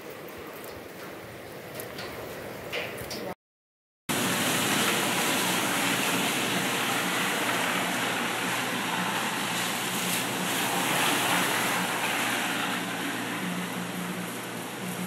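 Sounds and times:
car driving on wet road: 0:04.1 - 0:15.0
heavy rain on pavement: 0:04.1 - 0:15.0.

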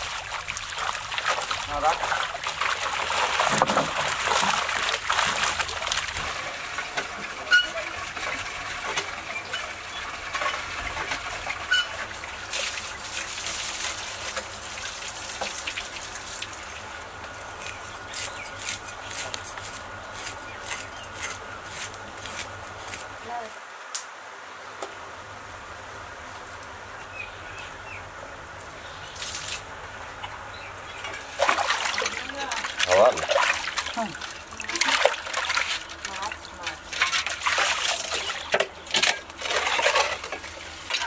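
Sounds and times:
pond water splashing: 0:00.0 - 0:17.0, 0:29.1 - 0:41.0.

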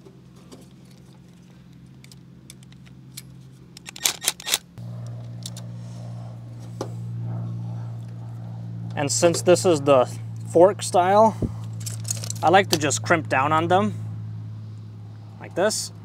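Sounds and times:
steady low hum: 0:00.0 - 0:16.0
metal clicks and rattles of wires: 0:00.4 - 0:04.6, 0:11.6 - 0:12.9.

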